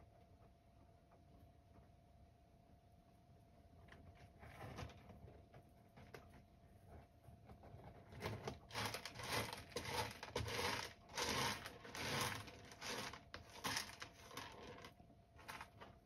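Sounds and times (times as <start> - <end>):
cat scratching litter: 3.9 - 16.0.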